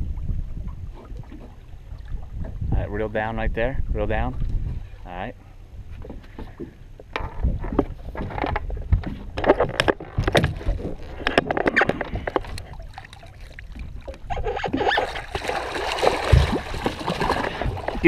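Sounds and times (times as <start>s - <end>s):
water splashing against boat hull: 5.9s - 18.0s
fish thrashing at surface: 14.6s - 18.0s.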